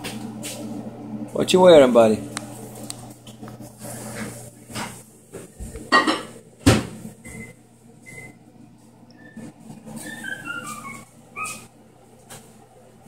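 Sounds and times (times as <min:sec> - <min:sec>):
sharp knocks in kitchen: 0:05.9 - 0:07.0.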